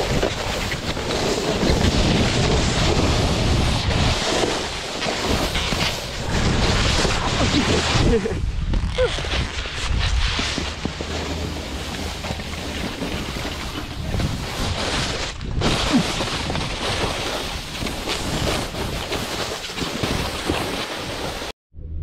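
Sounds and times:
snowboard scraping on snow: 0:00.0 - 0:21.5
wind buffeting microphone: 0:12.1 - 0:15.8.

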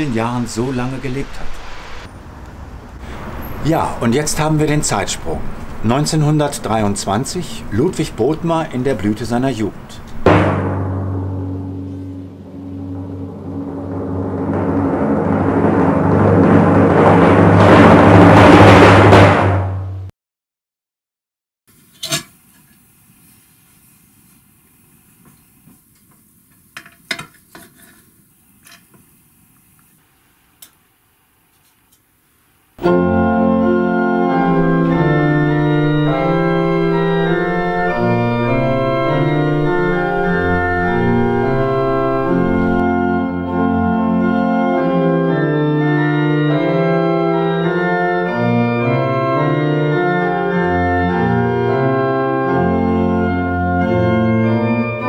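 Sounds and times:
organ music: 0:03.2 - 0:18.4, 0:32.8 - 0:55.0.

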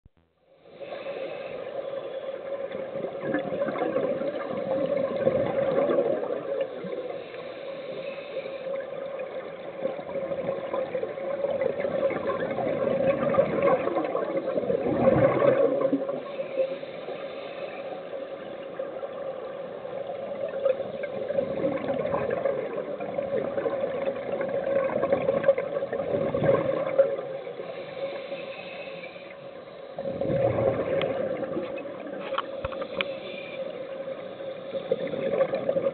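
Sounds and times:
diver exhaling bubbles: 0:11.6 - 0:16.2, 0:21.2 - 0:27.2, 0:30.0 - 0:31.8.

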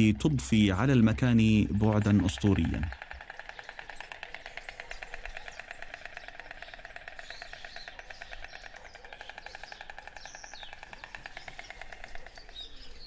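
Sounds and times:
small birds chirping: 0:00.0 - 0:13.0
storks clattering bills: 0:00.0 - 0:13.0.

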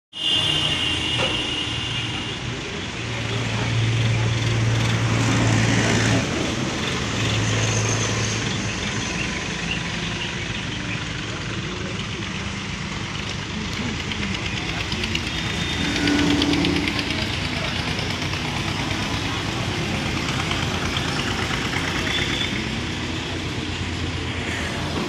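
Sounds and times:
crane engine working: 0:00.2 - 0:25.0
tractor engine idling: 0:06.2 - 0:25.0
short high-pitched sound: 0:15.2 - 0:18.2.

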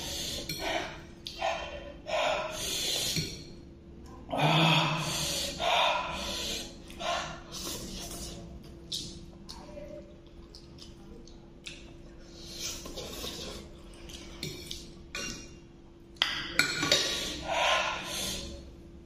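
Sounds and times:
soft slurps: 0:06.2 - 0:09.6, 0:10.2 - 0:15.0.

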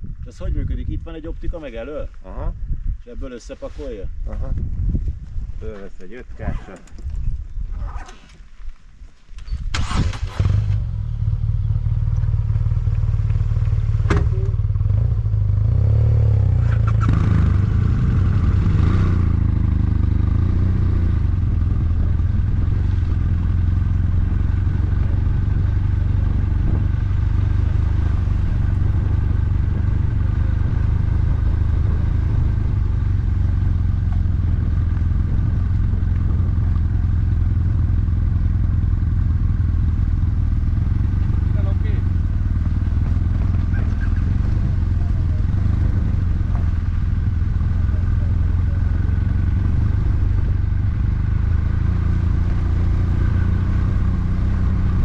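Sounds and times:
motorcycle engine starting: 0:09.4 - 0:55.0
motorcycle engine idling: 0:10.7 - 0:15.7, 0:16.6 - 0:55.0.

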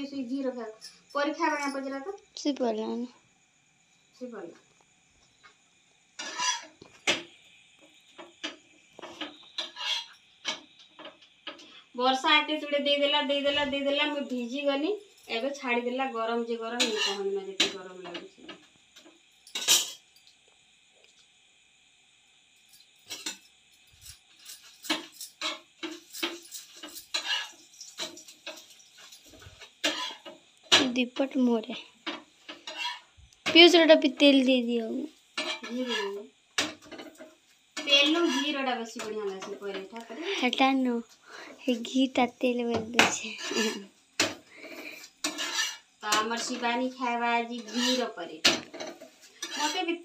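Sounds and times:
utensils scraping on griddle: 0:06.2 - 0:07.2, 0:08.2 - 0:11.8, 0:16.6 - 0:18.3, 0:19.0 - 0:20.0, 0:23.0 - 0:30.9, 0:32.0 - 0:34.2, 0:34.8 - 0:40.6, 0:43.0 - 0:50.0.

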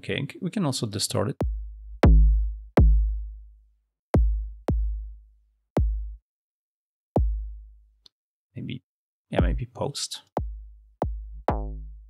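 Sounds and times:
distorted electronic kick drum: 0:01.4 - 0:03.2, 0:04.2 - 0:05.1, 0:05.8 - 0:06.2, 0:07.2 - 0:07.5, 0:09.4 - 0:09.6, 0:10.4 - 0:12.0.

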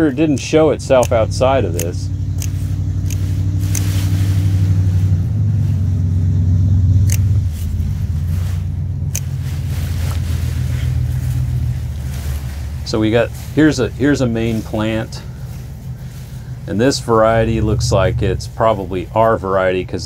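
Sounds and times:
low engine drone: 0:00.0 - 0:20.0
hand clippers snipping: 0:00.1 - 0:04.2, 0:07.0 - 0:07.9, 0:09.1 - 0:10.2.

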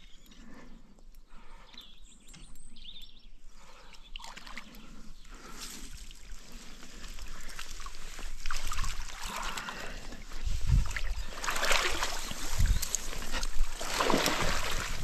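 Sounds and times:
fish thrashing at water surface: 0:11.4 - 0:15.0
water splashing off net: 0:13.8 - 0:15.0.

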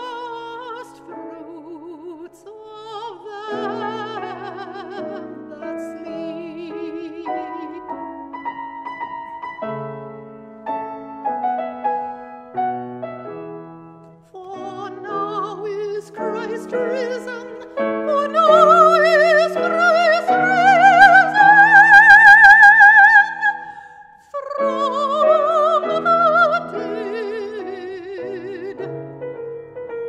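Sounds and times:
soprano singing opera: 0:00.0 - 0:08.4, 0:14.3 - 0:29.0
grand piano: 0:00.0 - 0:30.0.

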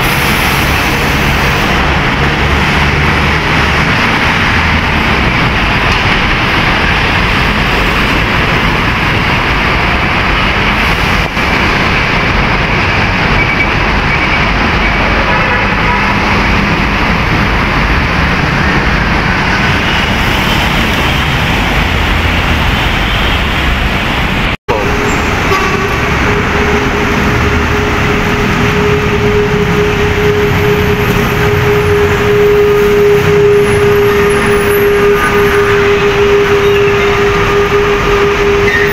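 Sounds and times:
road traffic rumble: 0:00.0 - 0:38.9
steady horn tone: 0:24.7 - 0:38.9.

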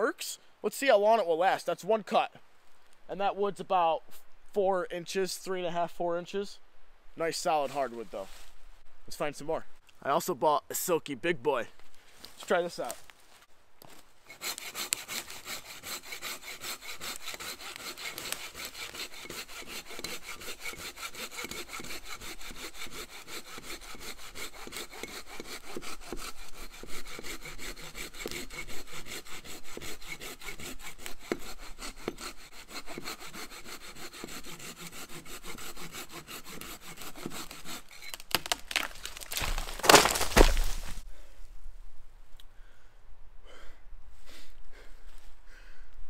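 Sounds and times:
hand saw cutting wood: 0:14.3 - 0:40.9.

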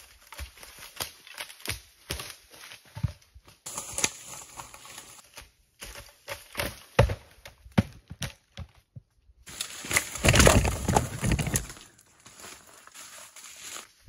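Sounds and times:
firewood thudding and knocking: 0:05.8 - 0:09.2, 0:09.9 - 0:11.8.

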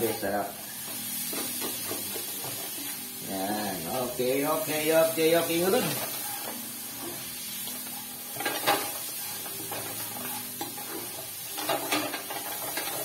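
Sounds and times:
vegetables sizzling in oil: 0:00.0 - 0:13.0
spatula scraping a pan: 0:05.8 - 0:13.0.

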